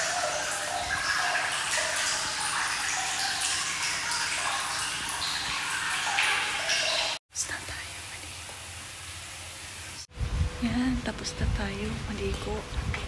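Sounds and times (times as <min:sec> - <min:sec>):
running water rushing: 0:00.0 - 0:10.1.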